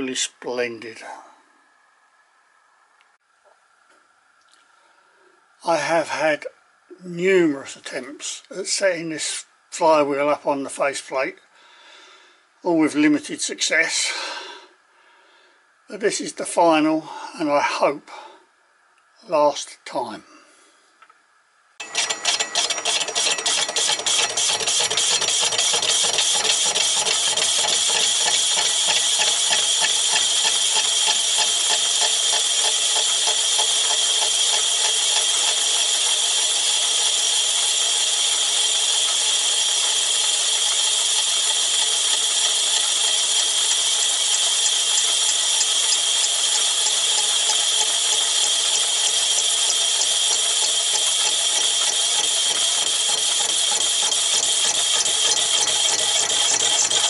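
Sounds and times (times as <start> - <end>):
lathe running: 21.8 - 57.0.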